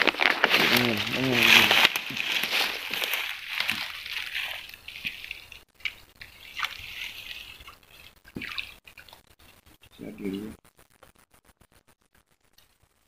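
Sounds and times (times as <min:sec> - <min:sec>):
water splashing and sloshing: 0:00.0 - 0:09.8.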